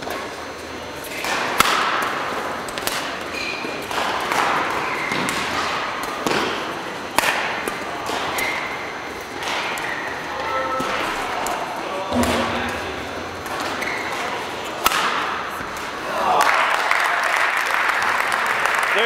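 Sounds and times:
racket hitting shuttlecock: 1.1 - 10.1, 12.1 - 16.0
shoes squeaking on court: 2.7 - 6.7, 7.7 - 11.4, 12.2 - 14.8.

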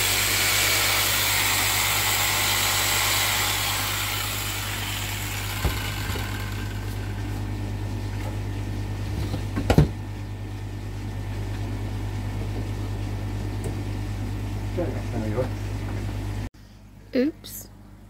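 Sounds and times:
jigsaw cutting wood: 0.0 - 7.6.

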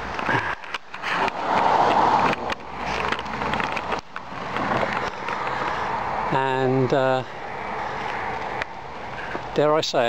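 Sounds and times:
camera handling bumps and rustles: 0.0 - 6.1.

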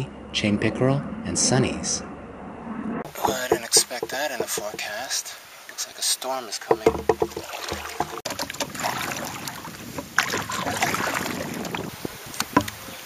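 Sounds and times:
paddle splashing in water: 3.0 - 5.1, 6.7 - 13.0.

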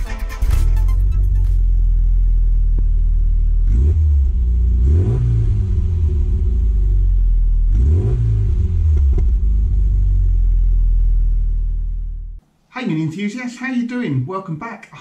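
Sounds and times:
car engine idling: 1.0 - 3.7, 8.7 - 12.4
engine revving: 1.4 - 11.8.

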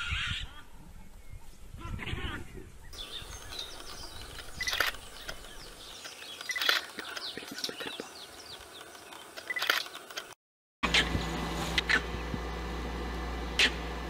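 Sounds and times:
birds chirping: 0.0 - 10.3
sharp bird calls: 2.8 - 10.1.

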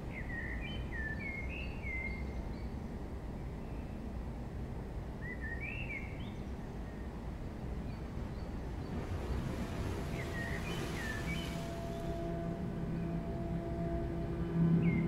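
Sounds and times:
low rumble: 8.2 - 15.0
hiss: 9.0 - 12.1.

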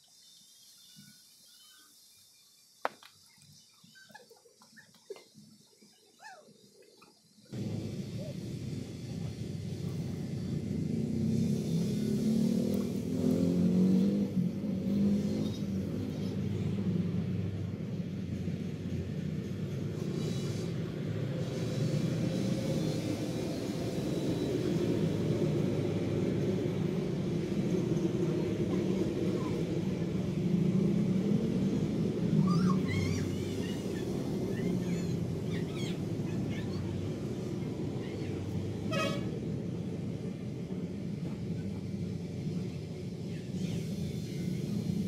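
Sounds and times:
short horn toot: 38.9 - 39.4.

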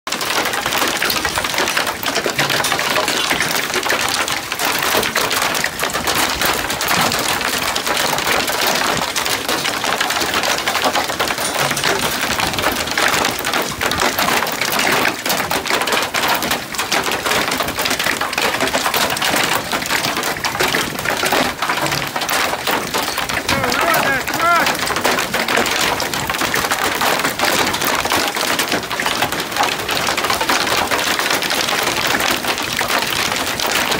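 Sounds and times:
hail clattering on deck and gravel: 0.1 - 33.9.

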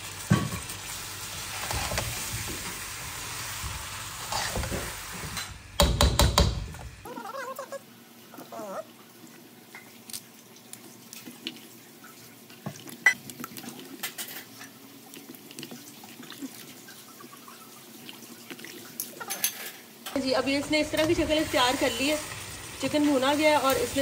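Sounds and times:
small splashes and drips: 9.0 - 19.3.

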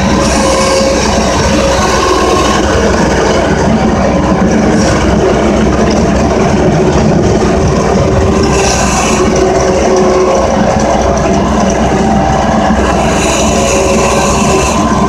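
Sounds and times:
loader engine running: 0.0 - 15.0.

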